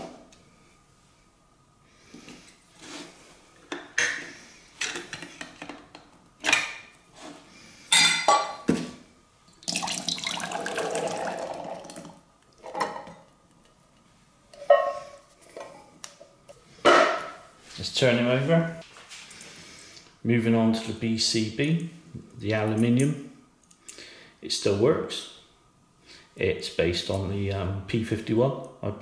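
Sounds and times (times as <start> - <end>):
chickpeas and liquid pouring: 9.6 - 12.2.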